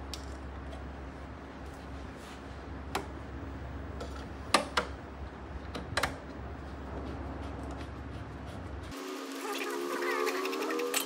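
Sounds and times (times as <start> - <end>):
steady low hum: 0.0 - 9.2.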